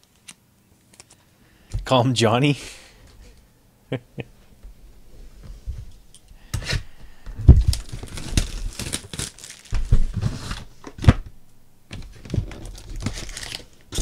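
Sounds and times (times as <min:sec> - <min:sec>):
knocks and crinkling of foil packs: 0:06.5 - 0:11.3, 0:11.9 - 0:14.0.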